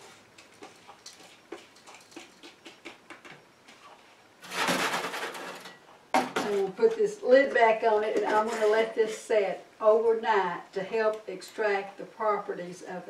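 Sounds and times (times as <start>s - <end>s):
loud rustling scrape: 4.4s - 5.8s, 8.3s - 9.2s.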